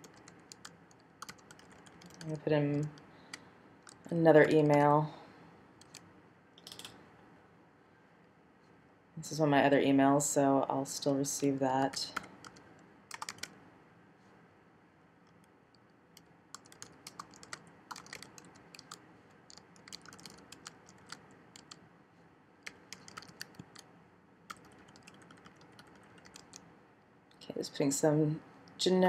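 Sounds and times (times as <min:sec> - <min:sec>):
computer keyboard typing: 0:00.0 - 0:03.0, 0:03.8 - 0:04.8, 0:05.8 - 0:06.0, 0:11.9 - 0:13.6, 0:16.5 - 0:21.8, 0:22.6 - 0:23.9, 0:24.5 - 0:26.6.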